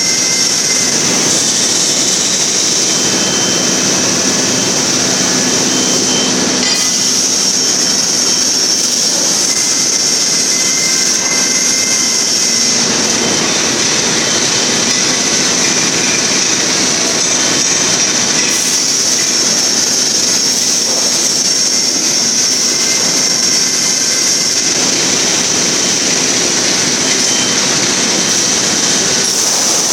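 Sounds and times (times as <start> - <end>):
industrial machinery rumble: 0.0 - 29.9.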